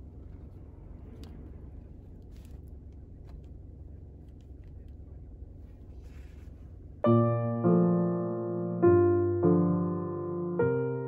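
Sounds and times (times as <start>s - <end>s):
low outdoor rumble: 0.0s - 11.0s
brief rustle: 2.0s - 3.6s, 5.6s - 6.8s
electric piano music: 7.0s - 11.0s.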